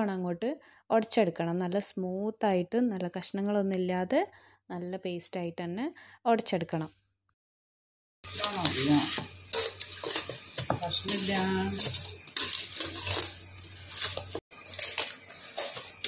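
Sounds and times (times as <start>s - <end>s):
metal masher clinking in steel bowl: 8.4s - 15.9s.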